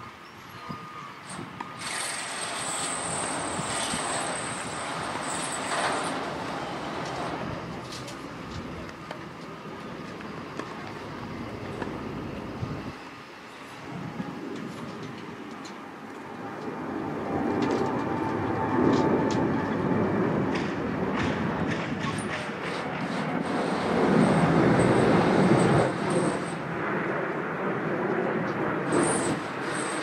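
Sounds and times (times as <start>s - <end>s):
high-pitched squeal: 0.0s - 8.2s, 28.9s - 30.0s.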